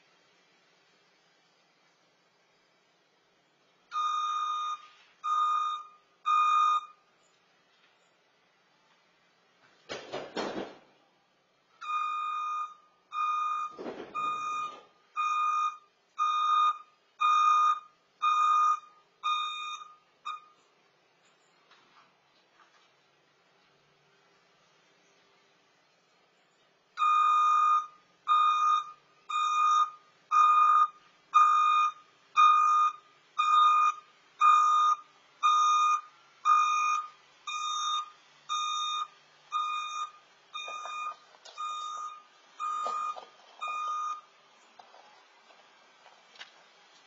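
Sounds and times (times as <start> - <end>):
reversing alarm beeping: 3.9 - 7.0, 11.8 - 20.6, 27.0 - 44.4.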